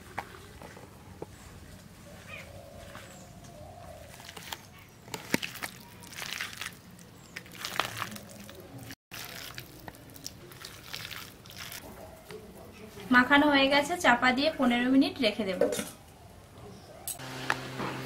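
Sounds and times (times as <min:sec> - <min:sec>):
hands squelching wet batter: 0:04.0 - 0:11.8.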